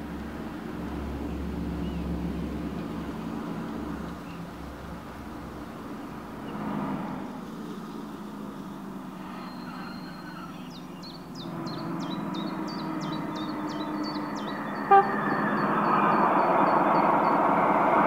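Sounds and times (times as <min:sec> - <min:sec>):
short horn toot: 0:14.8 - 0:15.2.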